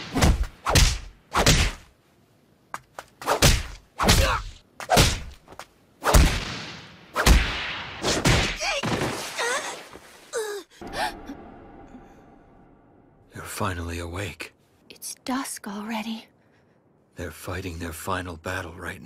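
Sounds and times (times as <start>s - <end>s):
heavy punch thuds with whoosh: 0.0s - 1.9s, 6.0s - 8.6s.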